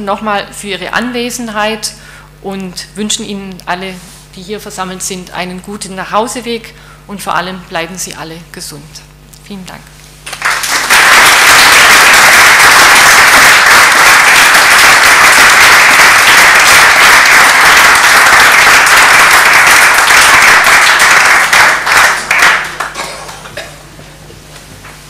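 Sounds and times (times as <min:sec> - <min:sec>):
audience applause: 0:10.3 - 0:23.5.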